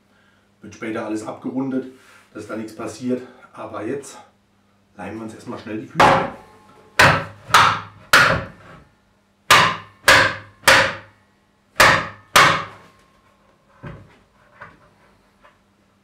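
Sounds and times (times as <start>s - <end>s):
hammer knocking on wood: 6.0s - 6.4s, 7.0s - 8.5s.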